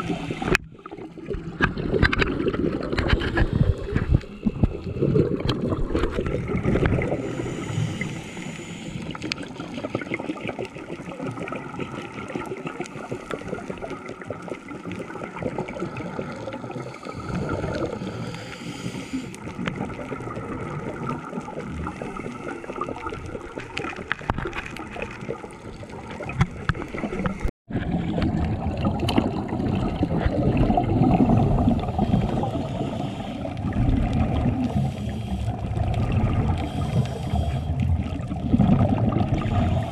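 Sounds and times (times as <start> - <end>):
underwater exhaust bubbles gurgling: 0.0 - 39.9
crackle of tiny clicks: 9.0 - 16.6, 19.3 - 27.5.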